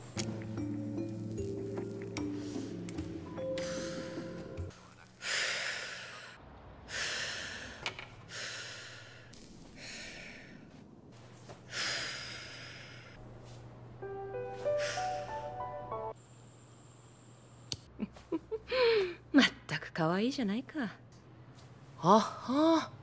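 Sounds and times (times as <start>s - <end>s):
rising musical notes: 14.0s - 16.2s.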